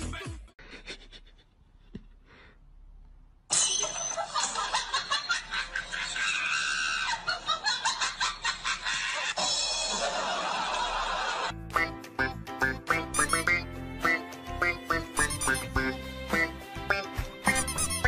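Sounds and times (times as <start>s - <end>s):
loud laughter: 3.9s - 11.6s.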